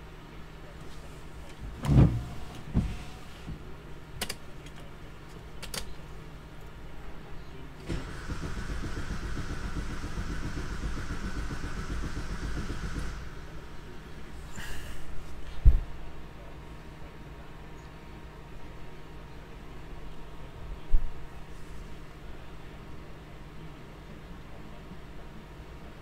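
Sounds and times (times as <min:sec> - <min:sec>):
engine starter cranking: 0:07.9 - 0:13.3.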